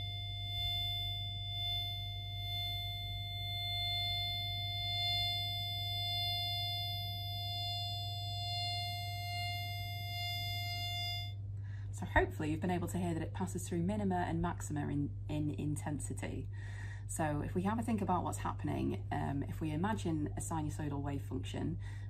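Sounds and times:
steady fixed-pitch tone: 0.0 - 11.4.

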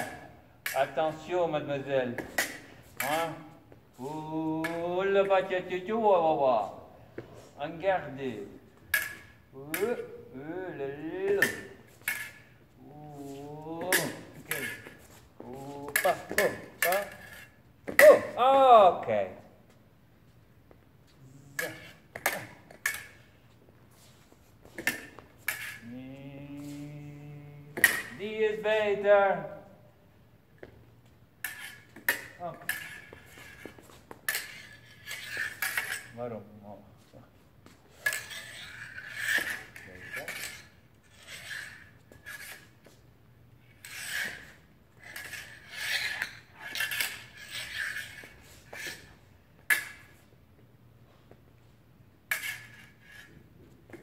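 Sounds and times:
fencing blades clashing: 0.0 - 5.9, 8.4 - 18.4, 21.5 - 23.5, 24.2 - 29.6, 30.6 - 36.5, 37.6 - 43.0, 43.7 - 50.4, 52.2 - 54.0.

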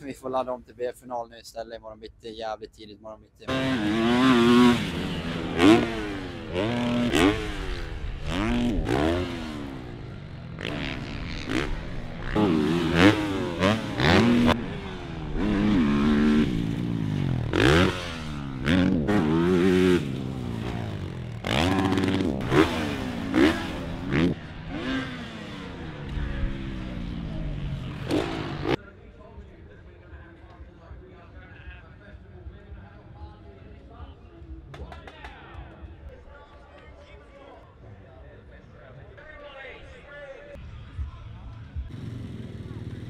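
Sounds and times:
motocross bike engines revving: 3.5 - 28.8, 41.9 - 43.0.

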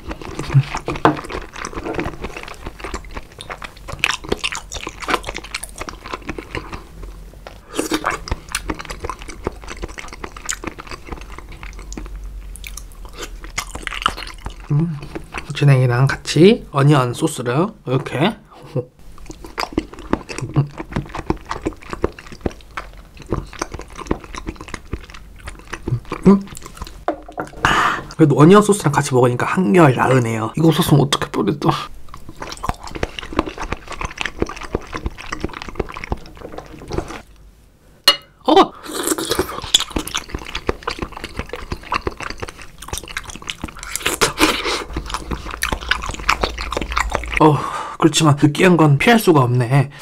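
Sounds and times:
chewing with wet mouth clicks: 0.0 - 15.6, 19.1 - 27.0, 32.1 - 37.2, 39.1 - 47.5.

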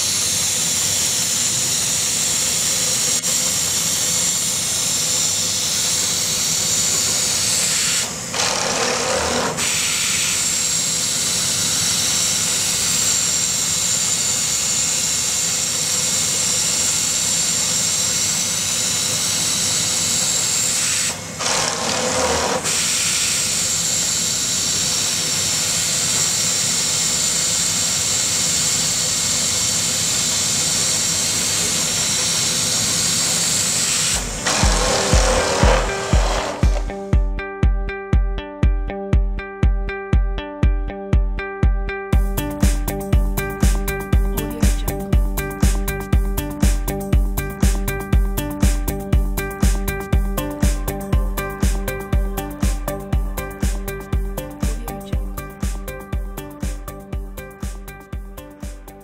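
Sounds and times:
laser cutter hissing: 0.0 - 8.4, 9.2 - 21.4, 22.2 - 36.9.

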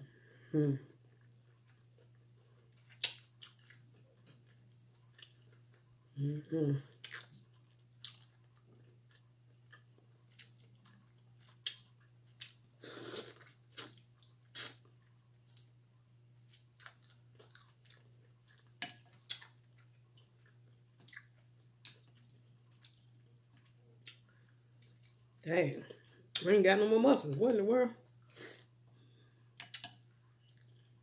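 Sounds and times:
faint steady hum: 0.0 - 31.0
chewing with wet smacks: 1.0 - 6.1, 6.8 - 26.5.

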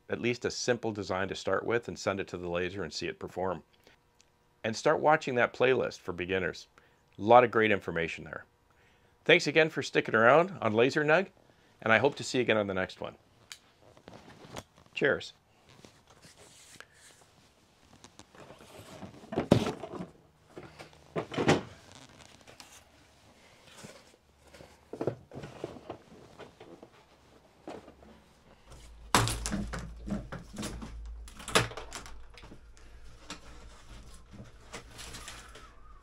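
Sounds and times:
low steady hum: 0.0 - 36.0
objects thudding and knocking: 18.8 - 21.8, 24.5 - 35.7.

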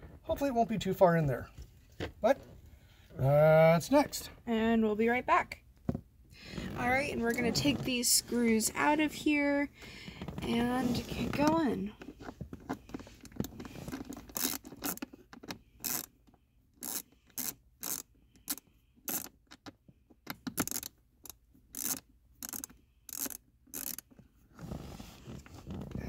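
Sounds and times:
ratchet pawl clicking: 14.3 - 15.0, 15.8 - 16.1, 16.8 - 19.4, 20.6 - 24.1.

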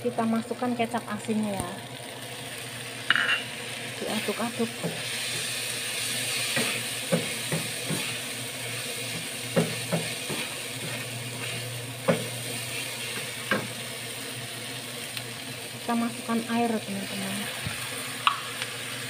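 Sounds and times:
vegetables sizzling in oil: 0.0 - 19.0
spatula knocking on pan: 6.5 - 8.1, 9.2 - 10.5.

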